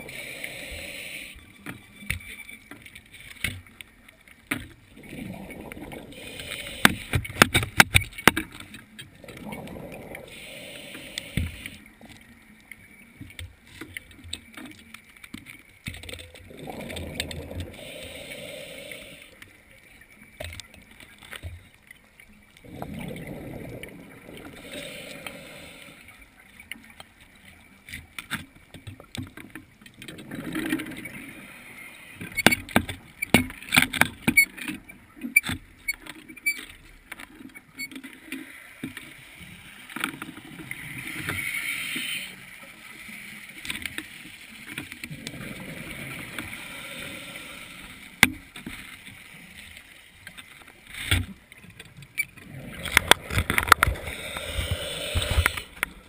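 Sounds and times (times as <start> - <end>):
scuba diver breathing: 0.0 - 1.7, 5.0 - 7.7, 9.2 - 12.0, 16.5 - 19.6, 22.6 - 26.4, 40.7 - 43.1, 45.1 - 48.3, 52.4 - 56.0
exhaled bubbles rushing: 5.0 - 6.9, 9.2 - 10.4, 16.4 - 17.9, 22.6 - 25.1.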